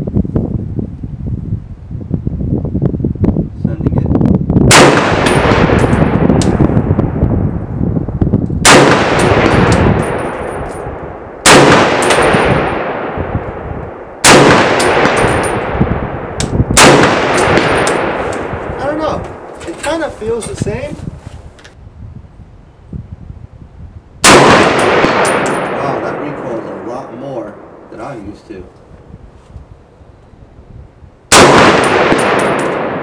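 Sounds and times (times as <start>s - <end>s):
rifle shots with echo: 4.7s - 6.8s, 8.6s - 19.5s, 24.2s - 27.9s, 31.3s - 33.0s.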